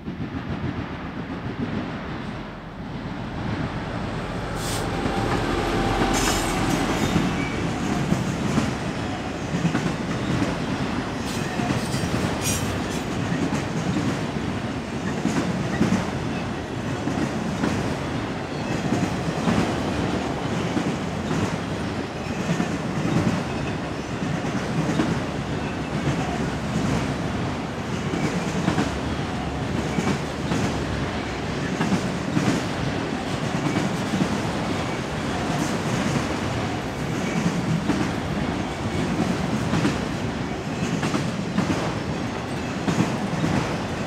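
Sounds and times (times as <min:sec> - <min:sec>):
diesel locomotive passing: 0:00.0 - 0:44.0
train wheels rumbling and clacking: 0:00.0 - 0:44.0
train wheels screeching: 0:04.3 - 0:09.4, 0:10.2 - 0:13.2.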